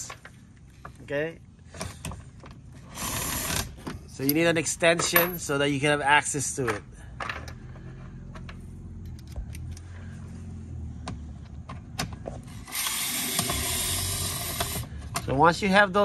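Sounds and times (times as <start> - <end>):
fast ratcheting: 2.9 - 3.8, 12.6 - 14.9
ratchet clicking: 12.5 - 14.9.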